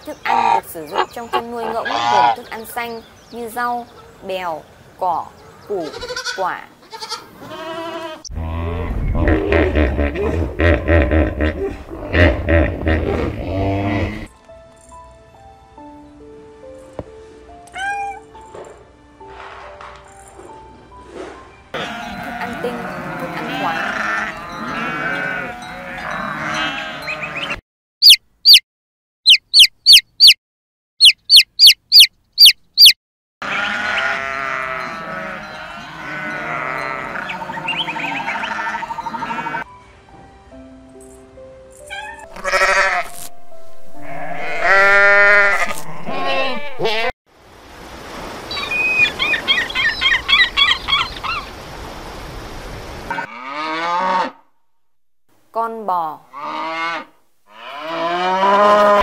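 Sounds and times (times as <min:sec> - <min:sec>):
gulls squawking: 0:00.2 - 0:02.6, 0:35.4 - 0:39.6, 0:48.5 - 0:51.5
goats bleating: 0:00.3 - 0:02.5, 0:05.8 - 0:08.3, 0:21.8 - 0:27.5, 0:33.4 - 0:39.6, 0:42.3 - 0:43.1, 0:44.0 - 0:47.1
chick peeping: 0:28.0 - 0:28.6, 0:29.3 - 0:30.4, 0:31.0 - 0:33.0.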